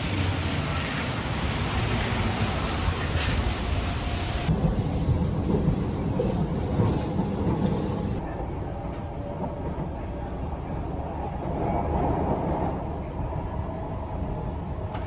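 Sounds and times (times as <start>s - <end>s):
rain hissing on pavement: 0.0s - 6.0s
metro train rumbling: 0.0s - 15.0s.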